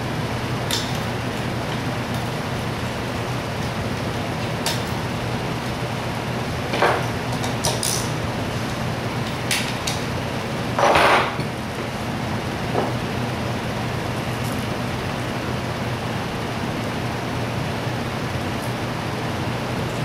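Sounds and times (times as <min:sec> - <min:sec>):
background hiss and hum: 0:00.0 - 0:20.0.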